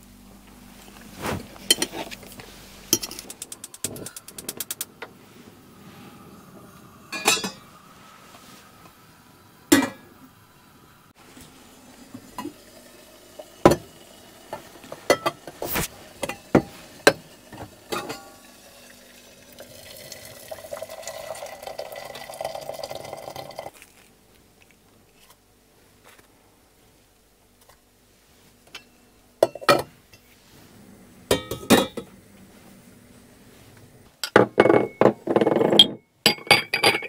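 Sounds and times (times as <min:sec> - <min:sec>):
steady hiss: 0:00.0 - 0:23.7
dishes and glasses clinking: 0:07.1 - 0:07.7, 0:15.0 - 0:15.4, 0:17.9 - 0:18.4, 0:31.3 - 0:32.1, 0:34.2 - 0:37.0.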